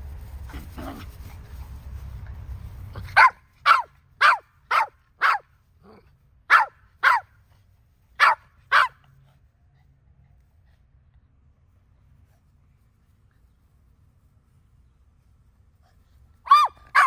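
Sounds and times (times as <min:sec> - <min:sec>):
small dog barking high-pitched: 0:03.0 - 0:05.6, 0:06.5 - 0:07.4, 0:08.2 - 0:09.1, 0:16.4 - 0:17.0.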